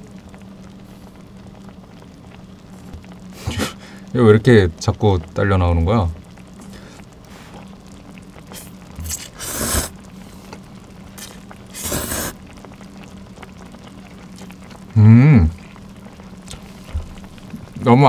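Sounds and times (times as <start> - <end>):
faint steady hum: 0.0 - 18.0
person slurping noodles: 8.5 - 10.0, 11.2 - 12.4
short pitched vocal sound: 15.0 - 15.6.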